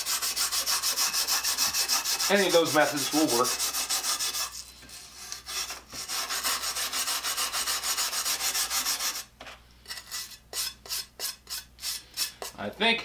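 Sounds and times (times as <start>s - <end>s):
paper towel scrubbing saw blade: 0.0s - 4.6s, 5.2s - 9.3s.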